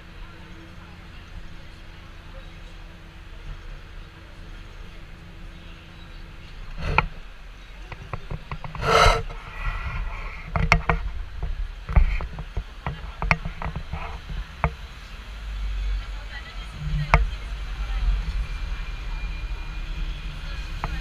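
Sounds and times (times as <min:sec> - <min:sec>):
tram body creaking and rattling: 0:00.0 - 0:21.0
sharp clicks and knocks: 0:07.9 - 0:09.4, 0:10.4 - 0:14.8.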